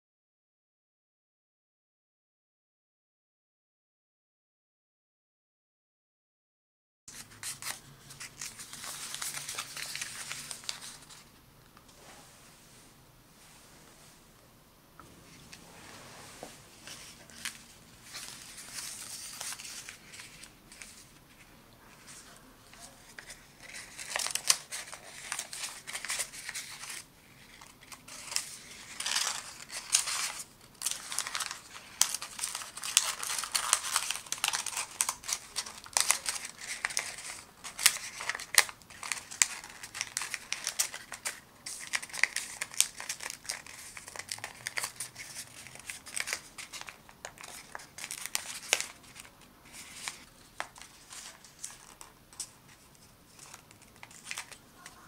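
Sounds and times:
paper rustling and crinkling: 7.1s - 11.3s, 15.3s - 55.0s.

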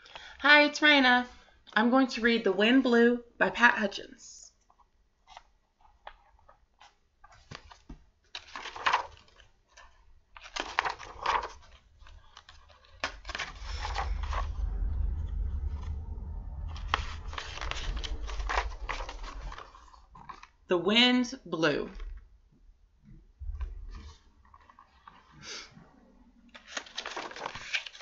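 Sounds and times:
book rustling and crinkling: 4.6s - 14.5s, 16.8s - 20.6s, 23.9s - 25.4s, 26.5s - 28.0s
low microphone handling rumble: 13.1s - 20.5s, 23.3s - 24.0s.

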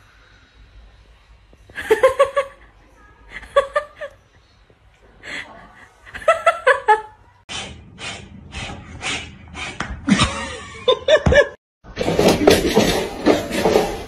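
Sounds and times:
person laughing: 10.1s - 11.6s.

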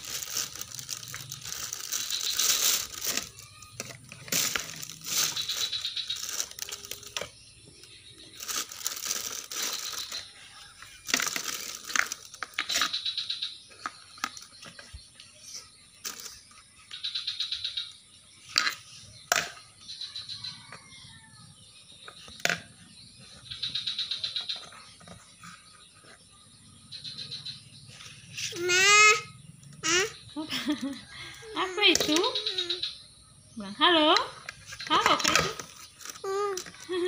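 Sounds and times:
plastic bag crinkling: 0.0s - 10.2s, 11.0s - 12.9s
plastic toy dishes clacking: 11.0s - 12.9s.

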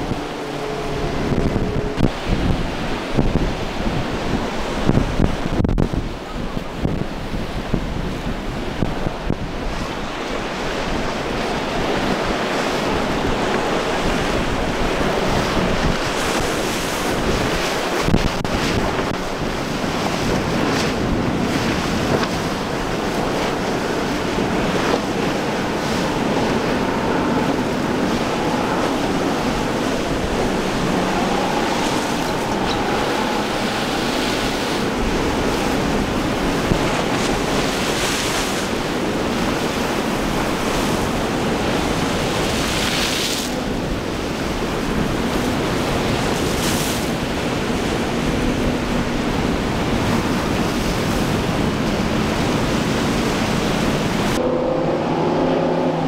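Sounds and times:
water splashes: 0.0s - 56.0s
waves crashing: 0.0s - 56.0s
wind buffeting microphone: 0.0s - 56.0s
outboard motor running: 10.5s - 42.9s.

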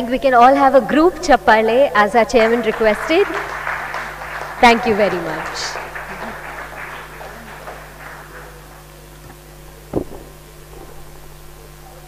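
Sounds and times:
mains hum: 0.0s - 12.0s
people clapping: 1.9s - 10.7s
dull thump: 9.9s - 11.3s.

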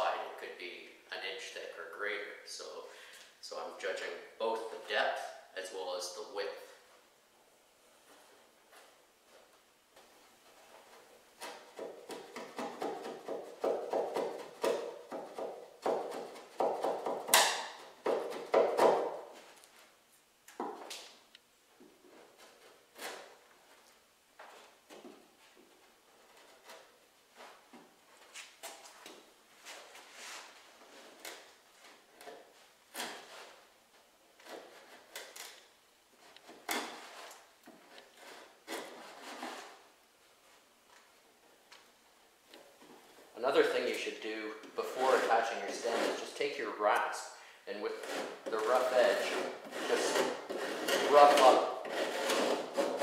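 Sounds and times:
chisel scraping wood: 10.6s - 19.5s, 22.1s - 23.4s, 34.4s - 35.6s, 36.2s - 39.9s, 44.8s - 47.2s, 47.8s - 53.0s.

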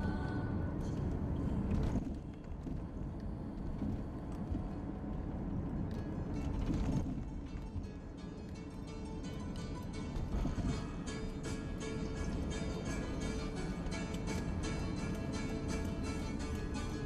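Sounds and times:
car engine and tyre rumble: 0.0s - 17.0s.

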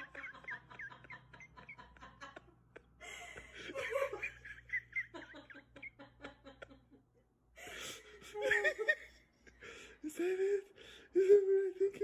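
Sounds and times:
person laughing: 0.0s - 7.0s.

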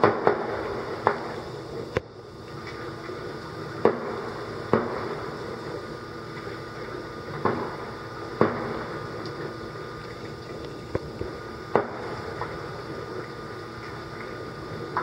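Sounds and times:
distant fireworks bangs: 0.0s - 1.5s, 3.1s - 9.8s, 11.0s - 13.2s.

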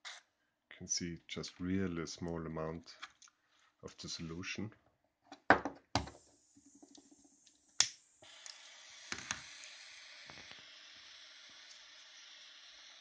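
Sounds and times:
torch flame hissing: 6.2s - 13.0s
torch igniter clicks: 7.8s - 9.4s.

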